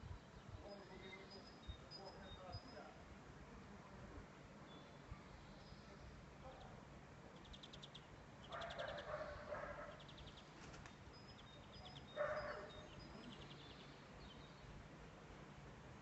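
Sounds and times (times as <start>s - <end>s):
high rapid bird trills: 7.4s - 14.4s
animal calls: 8.5s - 10.1s.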